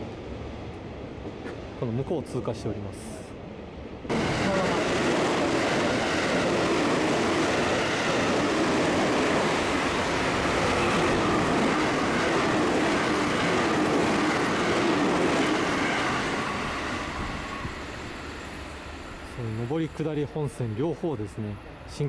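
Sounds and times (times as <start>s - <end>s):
trains passing at speed: 0.0s - 22.0s.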